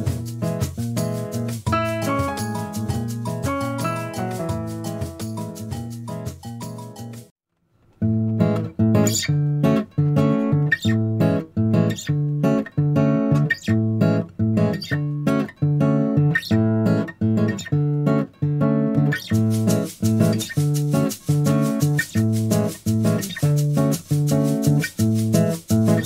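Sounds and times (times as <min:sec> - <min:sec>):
guitar plucking chords: 0:00.0 - 0:07.2, 0:08.0 - 0:26.0.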